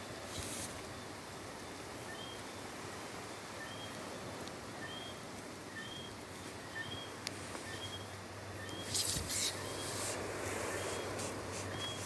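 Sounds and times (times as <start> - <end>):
sea hissing: 8.9 - 12.0.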